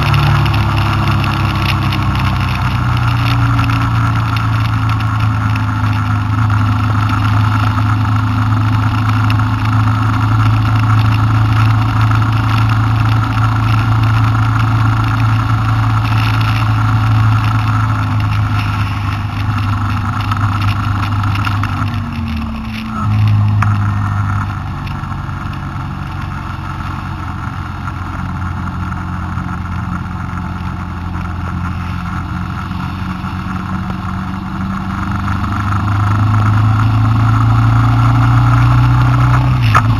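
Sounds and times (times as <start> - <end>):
car engine and road noise: 0.0 - 39.9.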